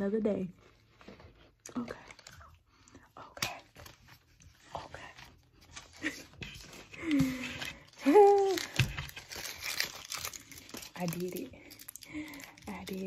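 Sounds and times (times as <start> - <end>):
paper crinkling: 3.4 - 13.0.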